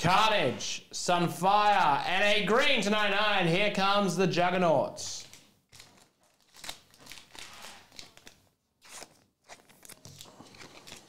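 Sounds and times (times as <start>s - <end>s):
cards and foil packs rustling: 5.2s - 11.0s.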